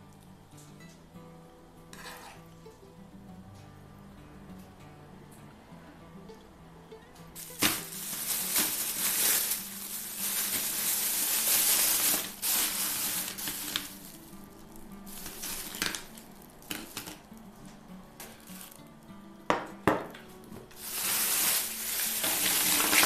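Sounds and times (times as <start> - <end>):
faint background music: 0.0 - 23.0
plastic bag crinkling: 7.4 - 17.4, 18.2 - 18.9, 20.8 - 23.0.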